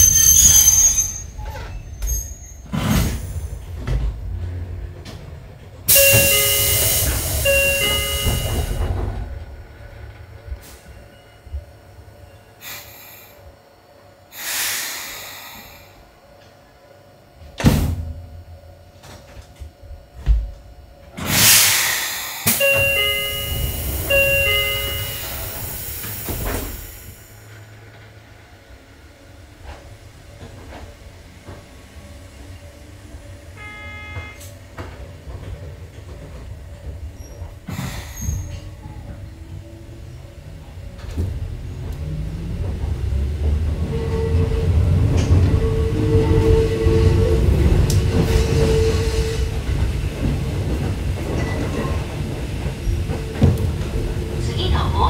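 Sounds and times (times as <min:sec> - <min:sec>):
air hiss of doors: 0:05.9 - 0:09.0, 0:12.6 - 0:13.4, 0:14.3 - 0:16.0, 0:21.2 - 0:27.4, 0:37.7 - 0:38.7
train door chime: 0:05.9 - 0:09.6, 0:22.4 - 0:27.5, 0:33.4 - 0:36.4, 0:50.2 - 0:53.6.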